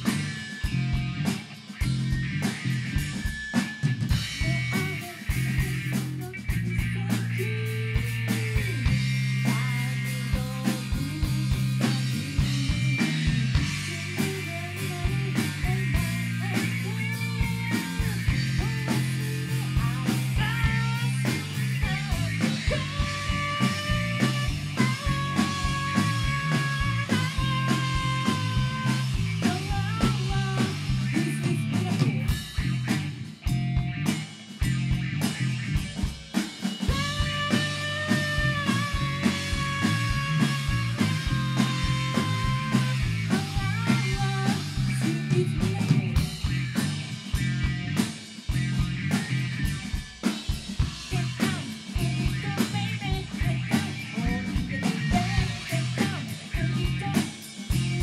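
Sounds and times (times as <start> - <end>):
rock band playing live: 0.0 - 58.0
woman singing: 4.4 - 13.0, 13.6 - 32.4, 36.9 - 46.4, 51.1 - 58.0.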